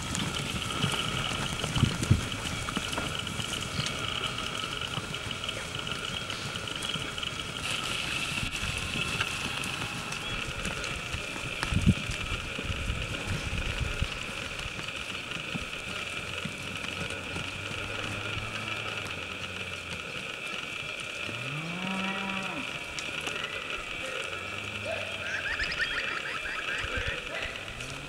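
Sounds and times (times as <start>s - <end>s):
cattle mooing: 17.0s - 20.6s, 21.2s - 28.0s.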